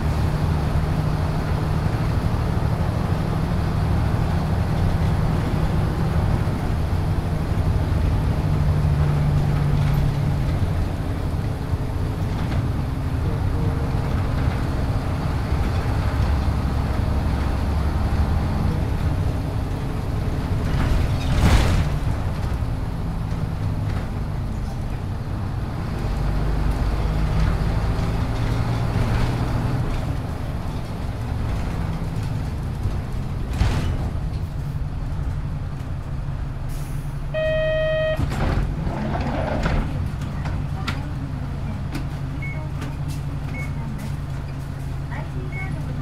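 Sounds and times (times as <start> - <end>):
bus diesel engine drone: 0.0 - 46.0
short electronic beep: 37.4 - 38.3.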